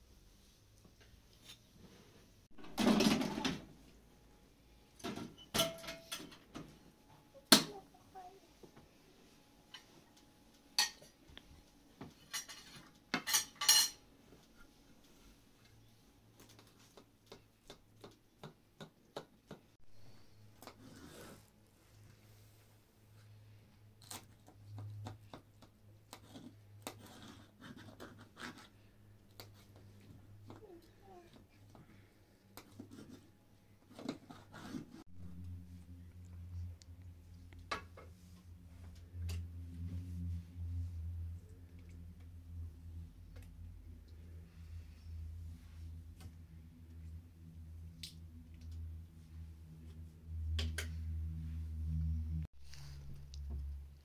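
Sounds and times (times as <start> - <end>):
kitchenware knocking and clinking: 2.6 - 3.6, 5.0 - 6.5, 12.1 - 14.0
kitchenware scraping: 2.6 - 3.8, 5.1 - 6.5, 10.8 - 11.2, 12.1 - 14.0
steady low hum: 35.1 - 54.0.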